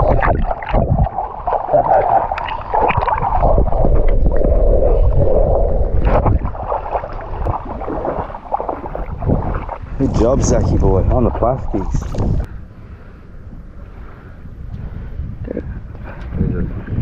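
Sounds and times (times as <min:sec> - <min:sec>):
low rumble: 0:00.0 - 0:17.0
muffled water sloshing and gurgling: 0:00.0 - 0:17.0.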